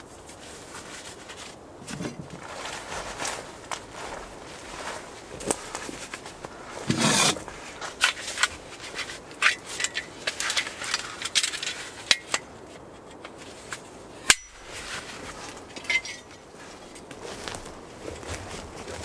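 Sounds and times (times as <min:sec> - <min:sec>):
rustling: 0:00.0 - 0:19.0
folding saw clicks and clinks: 0:09.3 - 0:13.4.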